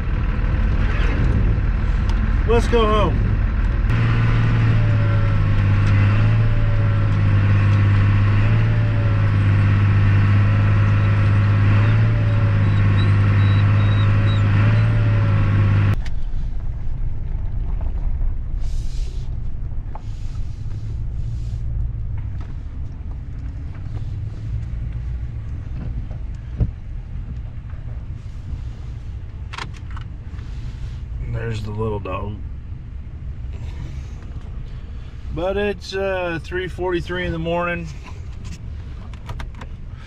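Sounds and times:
vehicle engine running under load: 0.0 - 40.0.

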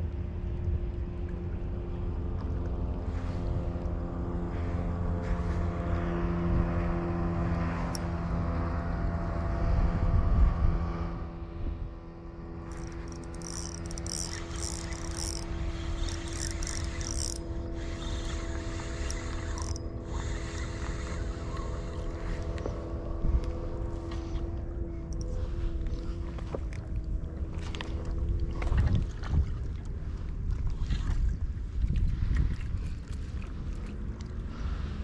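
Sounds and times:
boat motor running: 12.2 - 28.4.

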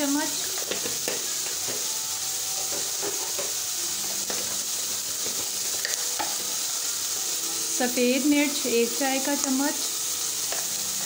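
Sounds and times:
chicken and mushrooms sizzling: 0.0 - 11.0.

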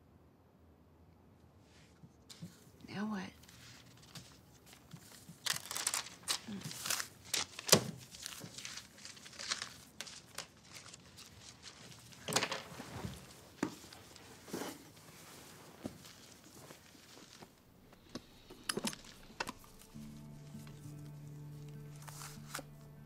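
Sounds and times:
paper rustling and tearing: 3.4 - 17.6, 19.0 - 23.0.

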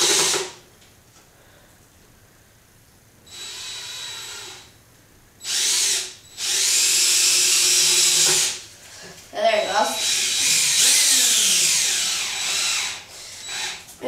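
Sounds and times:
cordless drill driving screw into wood: 0.0 - 0.6, 5.4 - 8.6, 10.0 - 13.9.

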